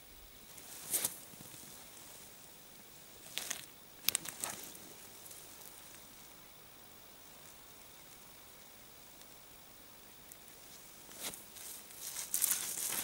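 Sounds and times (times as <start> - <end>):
crunching of snow and ice: 3.2 - 5.7, 10.7 - 13.0.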